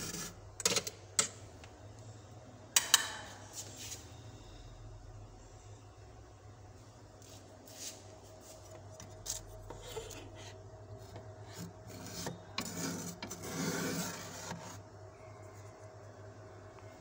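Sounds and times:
steady low hum: 0.0 - 17.0
metal spoon scraping frost: 9.0 - 14.8.

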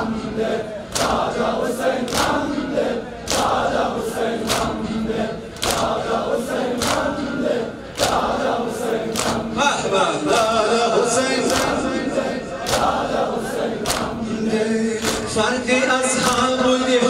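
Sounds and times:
crowd of men chanting: 0.0 - 17.0
chest-beating slaps: 2.1 - 2.4, 4.4 - 4.8, 6.8 - 7.2, 9.1 - 9.5, 11.4 - 11.9, 13.8 - 14.2, 15.0 - 15.4.

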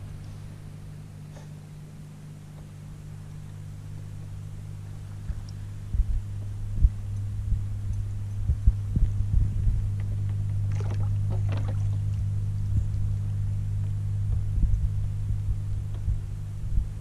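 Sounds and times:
boat motor humming: 0.0 - 17.0
low thumps: 3.9 - 17.0.

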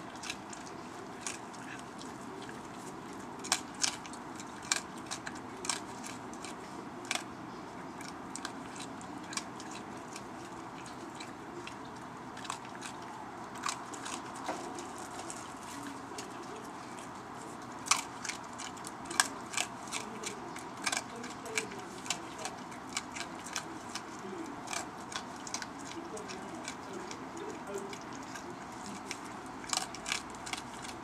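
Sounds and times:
low background noise: 0.0 - 31.0
raccoon crunching kernels: 0.0 - 31.0.

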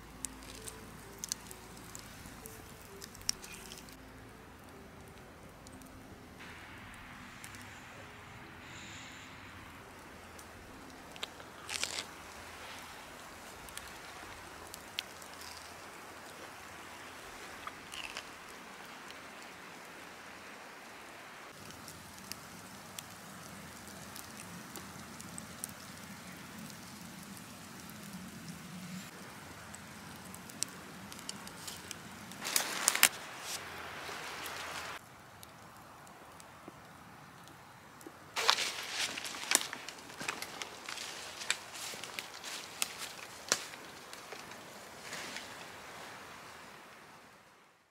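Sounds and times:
small crackles and clicks: 0.0 - 6.6, 9.9 - 19.8, 21.5 - 33.7, 34.4 - 45.7
faint steady hiss: 0.0 - 47.9
crunching: 10.9 - 12.7, 17.6 - 18.4, 38.4 - 45.5.

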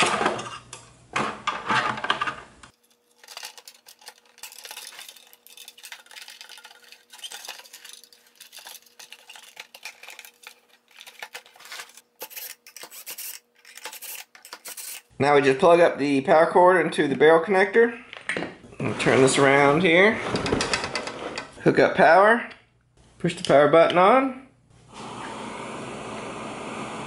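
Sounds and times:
plastic and metal parts clicking: 2.8 - 14.9.

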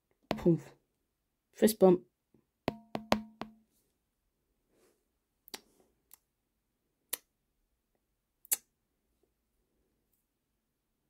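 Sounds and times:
plastic figure tapping on wooden table: 2.7 - 3.6.

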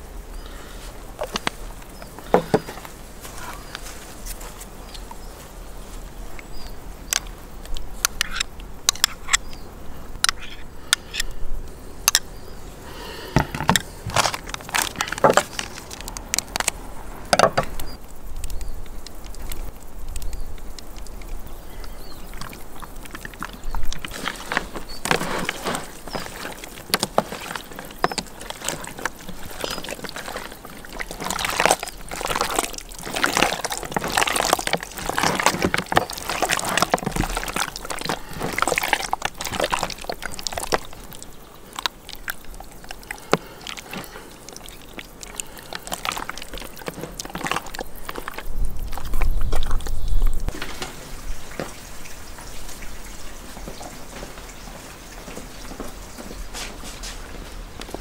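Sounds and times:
hands squelching raw meat: 20.8 - 50.1.

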